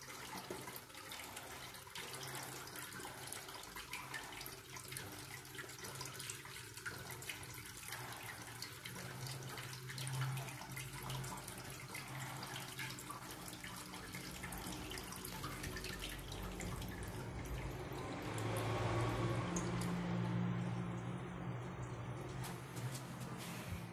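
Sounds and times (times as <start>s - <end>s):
toilet flush water rushing: 0.0s - 23.8s.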